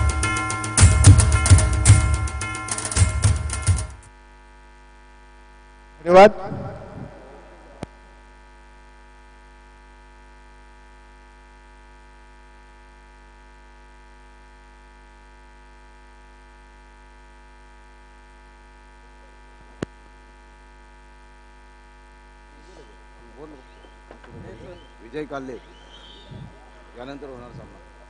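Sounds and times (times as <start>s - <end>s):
electrical mains hum: 0.0s - 28.0s.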